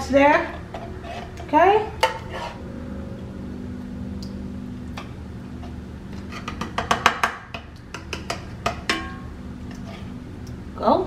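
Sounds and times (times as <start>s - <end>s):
low steady hum: 0.0s - 11.0s
ladle tapping on skillet: 6.4s - 9.8s.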